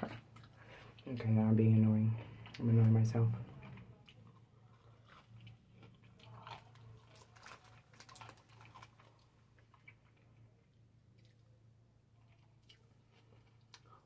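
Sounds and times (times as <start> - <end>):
chewing and crunching candy: 2.1 - 14.0.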